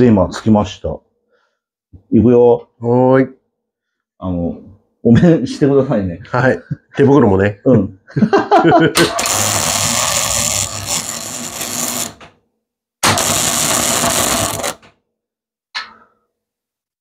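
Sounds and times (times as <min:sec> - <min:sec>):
arc welder crackling: 0:09.0 - 0:12.3, 0:13.0 - 0:14.9.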